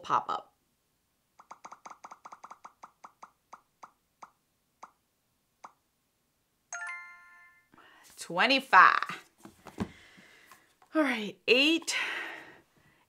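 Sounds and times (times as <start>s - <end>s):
bright chime: 6.7s - 7.7s.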